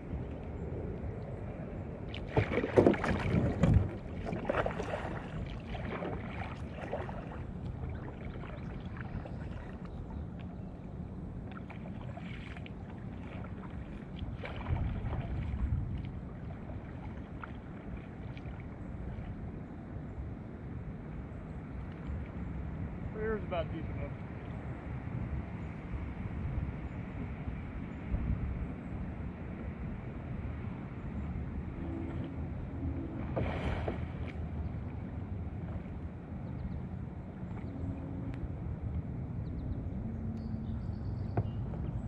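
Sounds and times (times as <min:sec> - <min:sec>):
paddle strokes splashing water: 0:02.0 - 0:19.5, 0:31.4 - 0:38.2.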